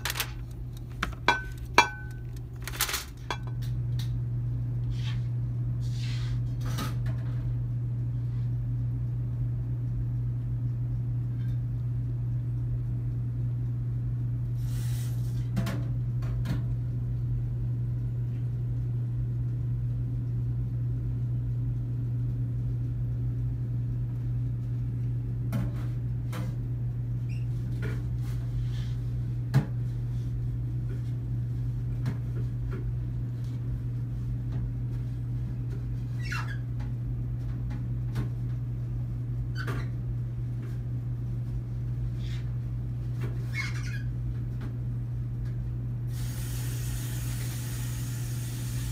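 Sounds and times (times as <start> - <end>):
short squeak: 43.5 - 44.1.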